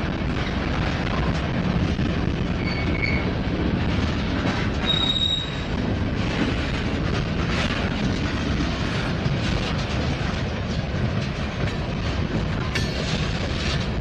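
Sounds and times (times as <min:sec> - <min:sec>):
freight train wheels rumbling: 0:00.0 - 0:14.0
high-pitched wheel squeals: 0:02.6 - 0:03.3, 0:04.8 - 0:05.6.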